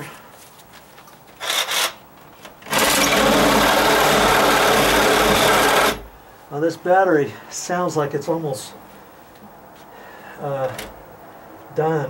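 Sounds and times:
reciprocating saw motor buzz: 2.6s - 6.1s.

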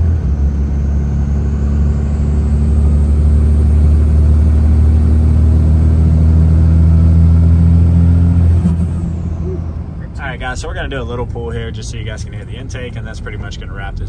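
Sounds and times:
diesel engine drone with intake noise: 0.0s - 14.0s.

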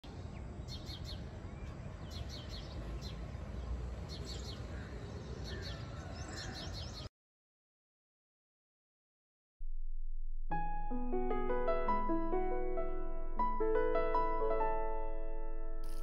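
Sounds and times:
small birds chirping: 0.0s - 7.1s.

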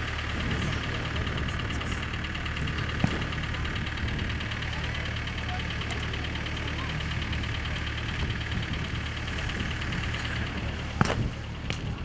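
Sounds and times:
engine idling with ticking: 0.0s - 12.0s
sharp crack: 2.7s - 3.7s, 10.2s - 12.0s.

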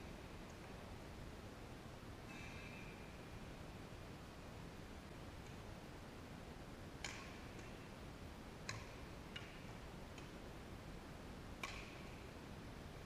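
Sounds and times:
rackets hitting shuttlecock: 7.0s - 7.9s, 8.6s - 10.4s, 11.6s - 12.2s.

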